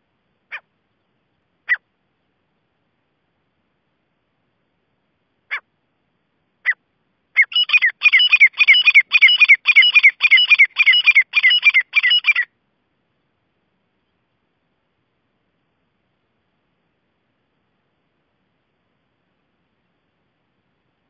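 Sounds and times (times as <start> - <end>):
francolin calling: 1.6 - 1.9, 7.4 - 12.6.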